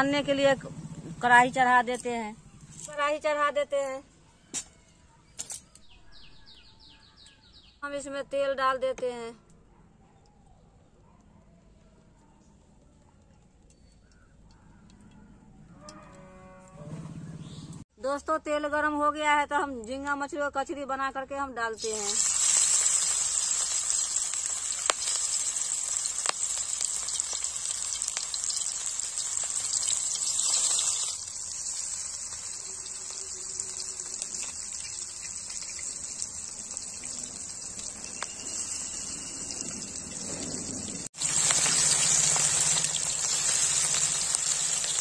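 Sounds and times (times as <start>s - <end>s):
fritters sizzling in hot oil: 21.8s - 45.0s.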